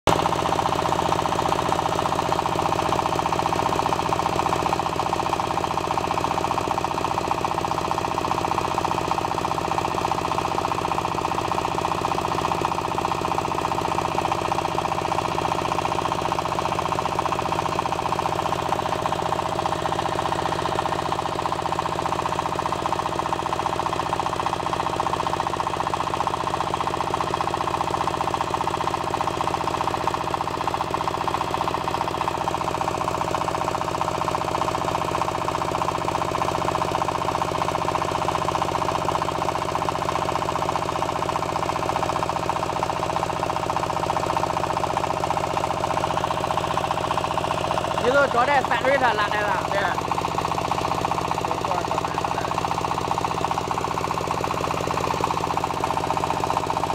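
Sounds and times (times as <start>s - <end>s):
diesel engine knocking: 0.1s - 56.9s.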